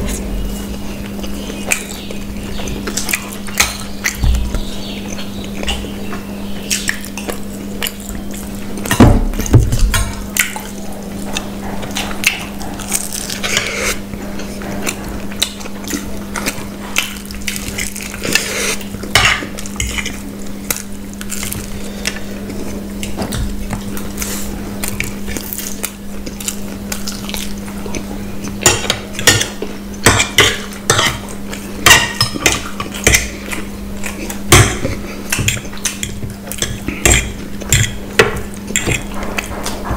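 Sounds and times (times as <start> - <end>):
low hum: 0.0 - 20.1
eating noises: 0.0 - 39.9
cutlery clinking on plates: 34.5 - 39.9.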